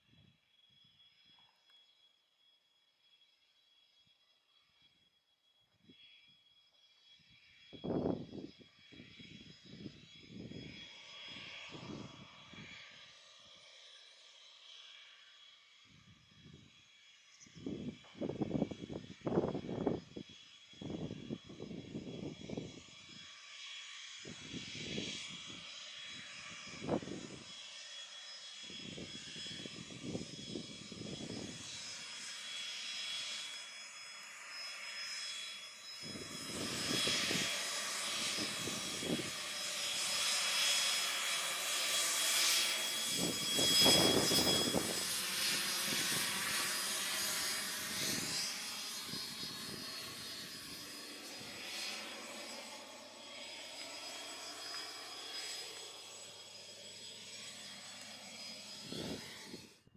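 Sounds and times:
jet engines whining: 0:07.2 - 0:13.6, 0:16.0 - 0:59.9
wind buffeting microphone: 0:36.0 - 0:40.2, 0:43.0 - 0:46.6, 0:58.8 - 0:59.8.

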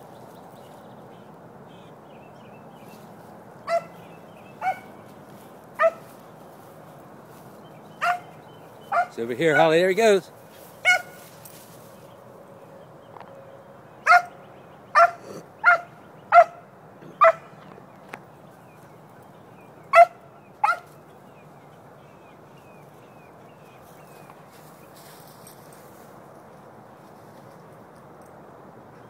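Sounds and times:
dog barking: 0:03.7 - 0:04.0, 0:04.6 - 0:05.0, 0:05.8 - 0:06.1, 0:08.0 - 0:08.3, 0:08.9 - 0:09.8, 0:10.8 - 0:11.2, 0:14.0 - 0:16.6, 0:17.2 - 0:17.5, 0:19.9 - 0:20.9.

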